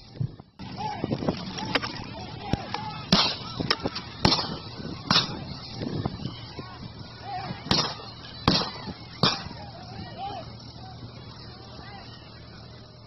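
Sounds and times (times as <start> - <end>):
loud gunshots: 4.2 - 5.4, 7.7 - 9.5.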